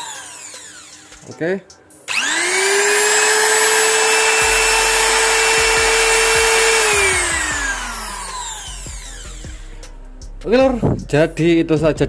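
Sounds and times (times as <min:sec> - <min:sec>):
router motor high whine: 0:00.0 - 0:01.2, 0:02.1 - 0:09.7.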